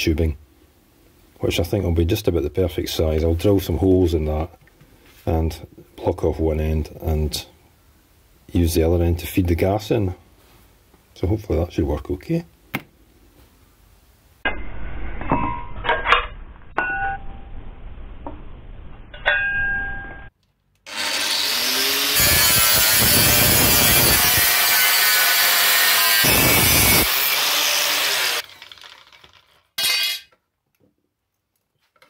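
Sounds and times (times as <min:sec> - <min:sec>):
angle grinder cutting steel: 0:20.9 - 0:30.3.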